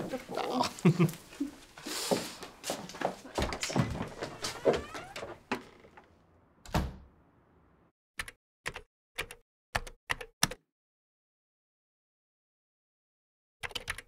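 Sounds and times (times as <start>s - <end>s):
door shutting with a thump: 6.6s - 7.2s.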